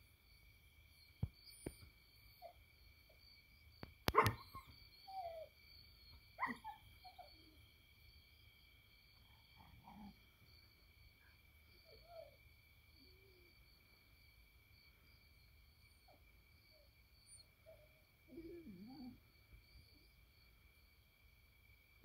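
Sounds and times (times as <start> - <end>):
dog barking and yelping: 4.1 - 7.6, 9.5 - 10.2, 16.8 - 19.2.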